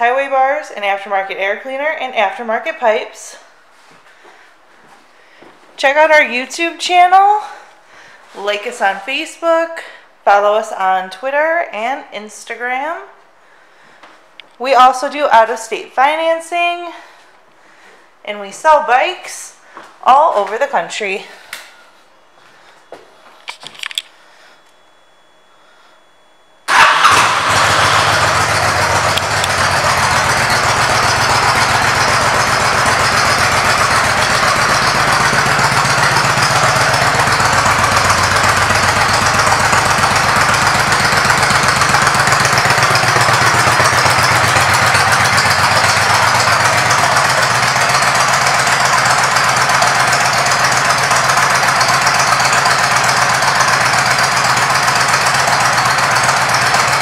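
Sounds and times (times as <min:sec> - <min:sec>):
motorcycle engine starting and idling: 0:26.7 - 0:57.0.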